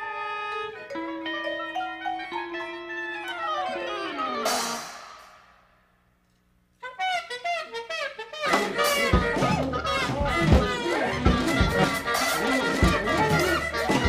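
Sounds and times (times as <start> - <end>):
sliding horn notes: 0.0 - 5.4, 6.8 - 14.0
jazzy cartoon music: 0.0 - 5.6, 6.8 - 14.0
cymbal crash: 4.4 - 5.8.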